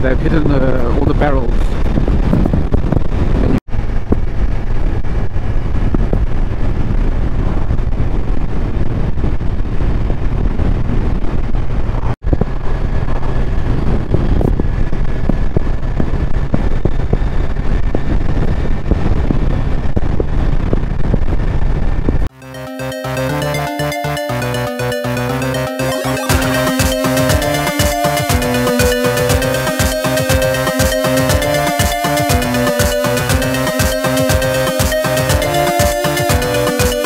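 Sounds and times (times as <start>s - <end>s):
wind noise on microphone: 0.0s - 22.3s
motorcycle engine drone: 1.9s - 37.0s.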